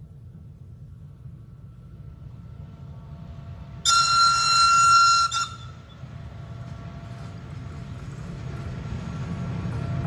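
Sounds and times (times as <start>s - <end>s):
low rumble of approaching train: 0.0s - 10.0s
electric railcar warning whistle: 3.7s - 6.3s.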